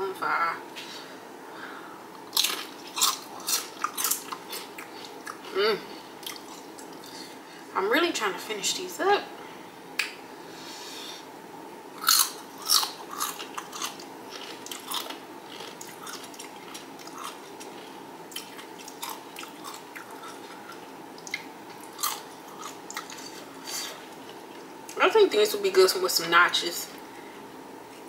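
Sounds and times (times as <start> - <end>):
chips crunching while chewed: 2.3 - 5.5, 12.0 - 24.4.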